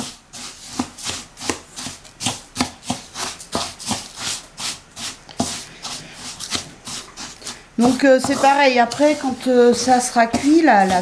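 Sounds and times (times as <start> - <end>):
spatula scraping grains in wooden bowl: 0.0 - 11.0.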